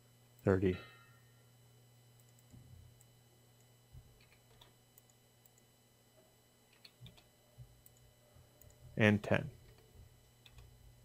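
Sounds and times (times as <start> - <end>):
faint room hum: 0.0 - 11.0
computer keyboard and mouse clicks: 6.7 - 8.0, 10.4 - 10.7.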